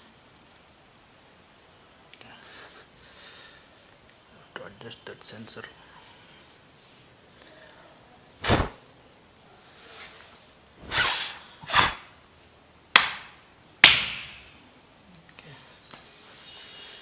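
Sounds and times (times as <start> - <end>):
sharp cracks: 8.4 - 8.8, 12.9 - 14.6.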